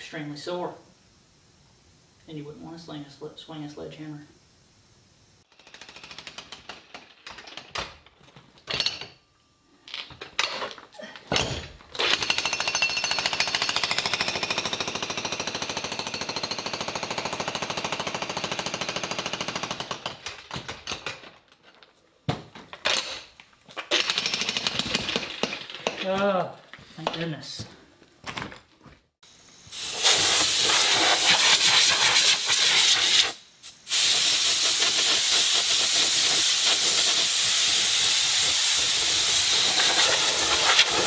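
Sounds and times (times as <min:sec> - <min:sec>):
jackhammer on concrete: 0:05.5 - 0:07.1, 0:12.0 - 0:21.2, 0:23.9 - 0:26.1.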